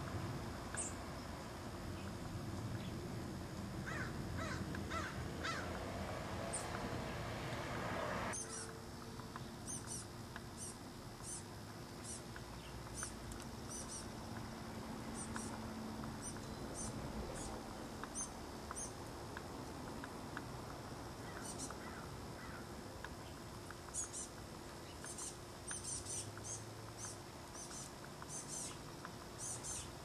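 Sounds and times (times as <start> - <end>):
crow cawing: 3.8 - 5.8, 21.2 - 22.7
high-pitched bird chips: 8.4 - 8.7.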